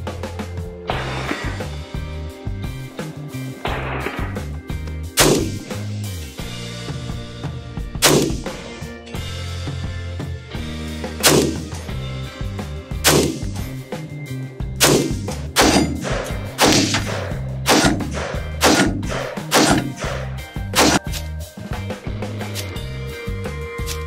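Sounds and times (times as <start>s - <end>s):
background music: 0.0s - 24.0s
rifle shots: 5.2s - 5.7s, 8.0s - 8.6s, 11.2s - 11.7s, 13.0s - 13.6s, 14.8s - 21.0s.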